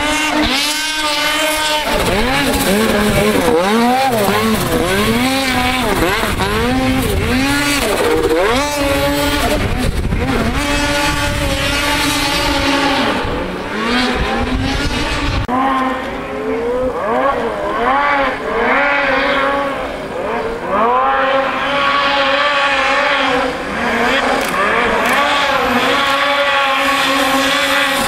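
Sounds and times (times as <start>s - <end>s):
snowmobile engine revving: 0.0s - 28.0s
heavy low rumble: 1.8s - 15.5s.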